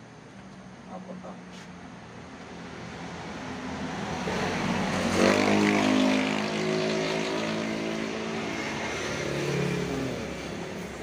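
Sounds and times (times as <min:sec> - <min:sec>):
vehicle engine revving: 0:03.8 - 0:11.0.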